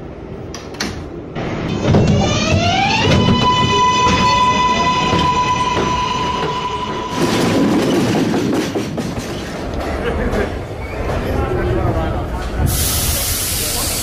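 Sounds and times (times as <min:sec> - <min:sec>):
train wheels clacking on rail: 0:01.8 - 0:11.5.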